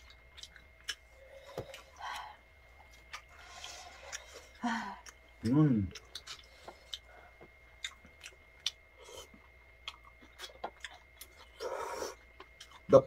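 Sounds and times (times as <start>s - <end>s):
quiet chewing: 0.0s - 13.0s.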